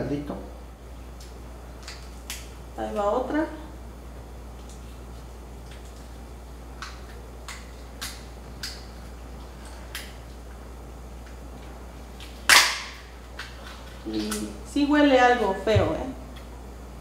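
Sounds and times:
crab shell cracking and snapping: 0:01.2 - 0:02.6, 0:06.7 - 0:09.0, 0:09.6 - 0:10.3, 0:12.2 - 0:14.5.

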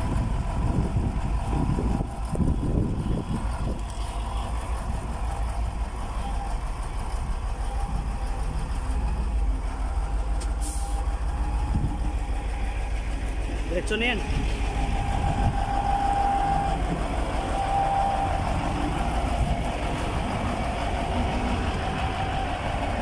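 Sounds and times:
diesel truck engine idling: 0:00.0 - 0:23.0
air brake hiss: 0:10.4 - 0:11.1.

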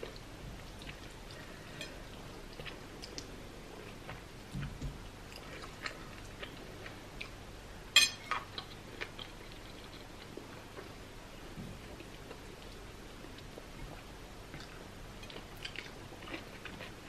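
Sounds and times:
chewing and mouth clicks: 0:14.6 - 0:17.0.

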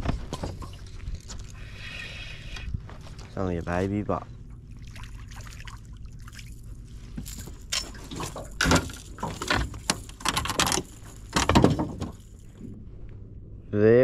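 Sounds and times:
water splashing and dripping: 0:04.7 - 0:06.7
knocks and rattles on boat: 0:07.9 - 0:12.4.

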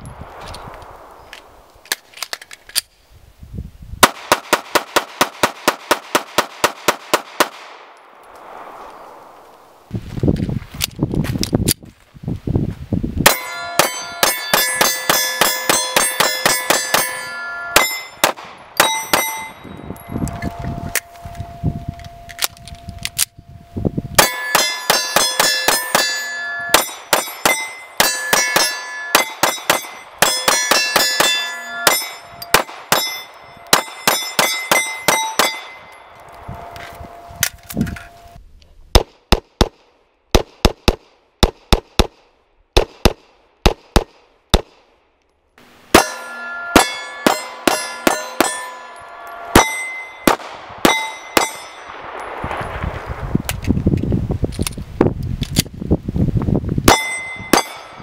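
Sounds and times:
pistol shots: 0:04.0 - 0:09.3, 0:13.3 - 0:19.5, 0:24.2 - 0:35.8, 0:46.8 - 0:52.6
steel targets ringing: 0:13.3 - 0:23.5, 0:24.2 - 0:38.4, 0:45.6 - 0:52.4, 0:56.9 - 0:58.0.

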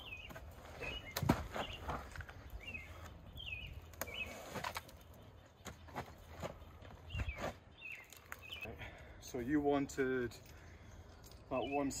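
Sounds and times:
songbird chirping: 0:00.0 - 0:12.0.

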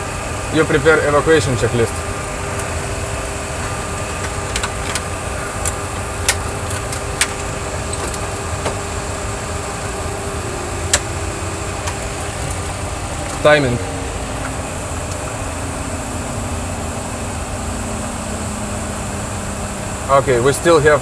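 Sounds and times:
engine-like hum and rumble: 0:00.0 - 0:21.0.

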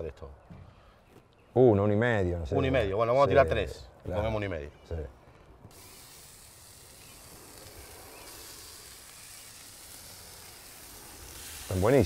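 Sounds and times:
steaks sizzling on a griddle: 0:05.7 - 0:12.0.

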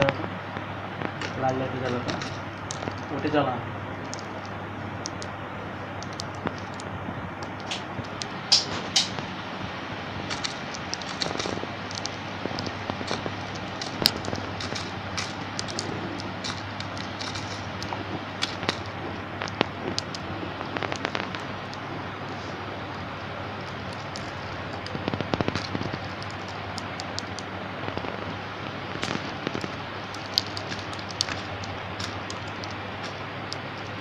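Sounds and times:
steady hiss and low hum: 0:00.0 - 0:34.0
beak clicking on seed dish: 0:30.1 - 0:32.8.

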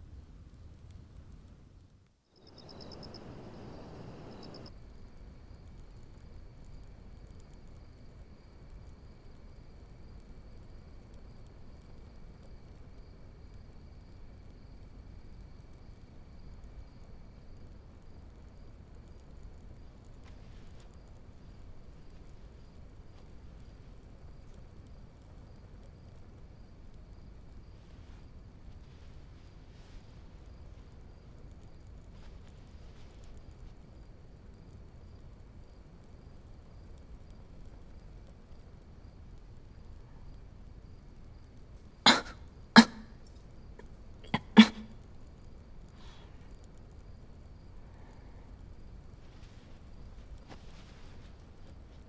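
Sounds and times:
crickets chirping: 0:02.3 - 0:52.0
woman coughing: 0:42.1 - 0:43.1, 0:44.3 - 0:44.9.

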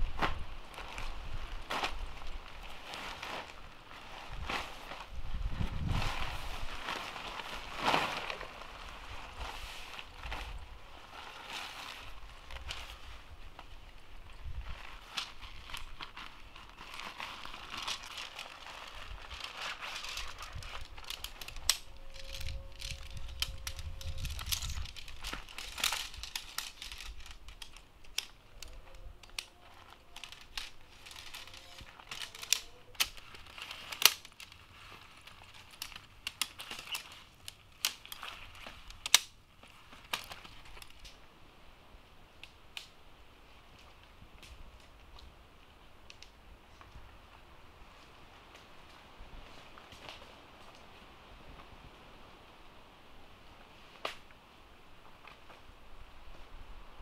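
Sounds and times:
tent fabric rustling: 0:00.0 - 0:27.9, 0:28.7 - 0:39.0
tent poles clicking together: 0:14.4 - 0:41.2, 0:46.1 - 0:46.9, 0:54.0 - 0:54.3.

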